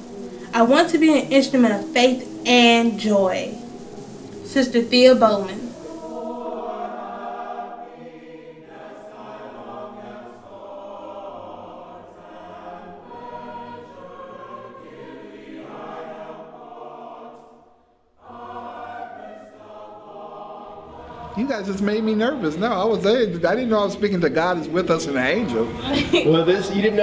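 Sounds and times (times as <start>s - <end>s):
choir singing: 0.0s - 27.0s.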